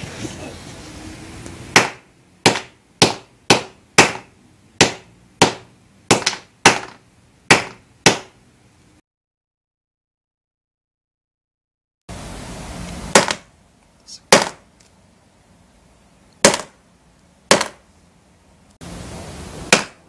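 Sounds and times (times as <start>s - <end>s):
hammer knocking on glass: 1.7s - 8.3s, 17.5s - 17.8s.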